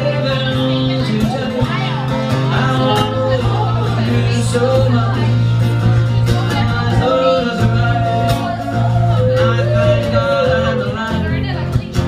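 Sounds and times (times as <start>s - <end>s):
acoustic guitar playing: 0.0s - 12.0s
woman singing long notes: 6.2s - 11.6s.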